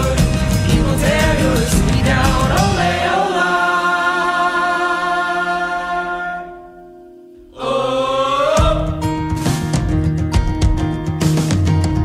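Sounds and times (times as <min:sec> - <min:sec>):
voices singing in harmony: 0:00.0 - 0:09.1.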